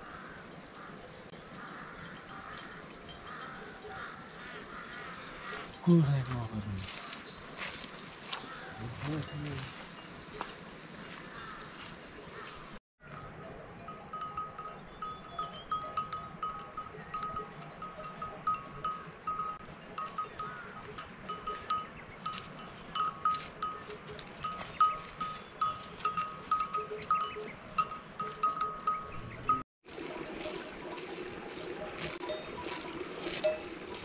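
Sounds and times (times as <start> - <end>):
animal neck bell clinking: 13.1 - 29.6, 32.1 - 34.0.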